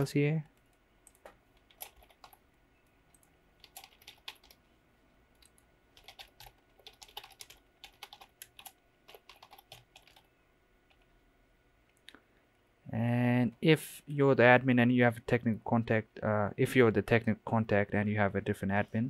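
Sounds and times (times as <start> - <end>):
faint computer keyboard typing: 0.0 - 4.6, 5.3 - 11.1.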